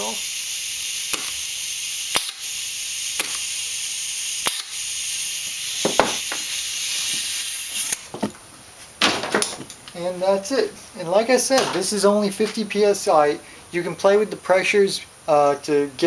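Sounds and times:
compressed air hissing: 0:00.0 - 0:08.1.

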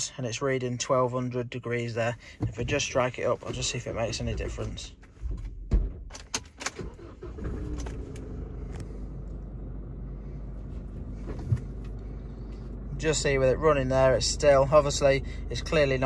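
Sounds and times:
diesel engine starting and idling: 0:06.1 - 0:16.0.

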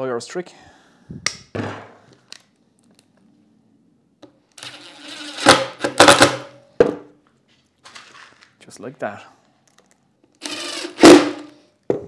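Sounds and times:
impact driver driving screw: 0:10.4 - 0:11.5.

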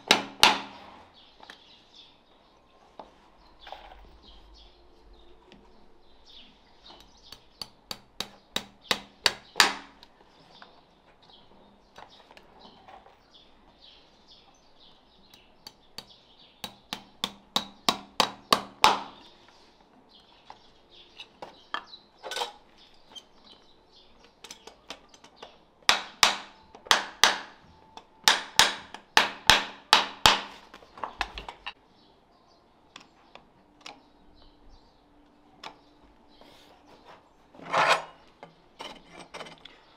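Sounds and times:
hammer tapping horseshoe nails: 0:00.0 - 0:00.9, 0:06.9 - 0:10.1, 0:15.3 - 0:19.3, 0:24.4 - 0:31.8.

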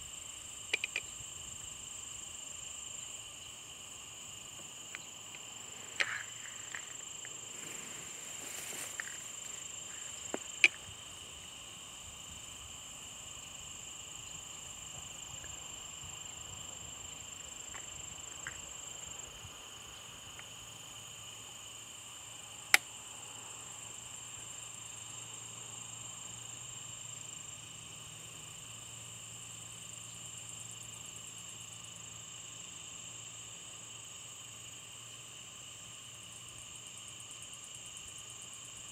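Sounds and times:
crickets and insects chirring: 0:00.0 - 0:38.9
sharp clicks: 0:00.7 - 0:01.1.

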